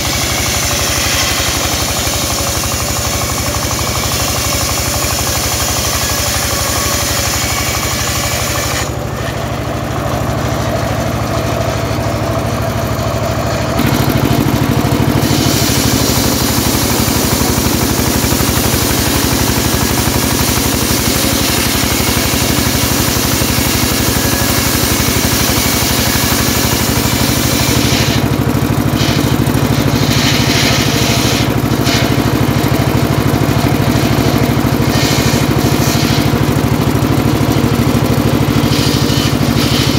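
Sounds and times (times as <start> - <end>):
saw blade ripping timber: 0.0 - 11.9, 13.5 - 39.9
circular saw bench running: 0.0 - 39.9.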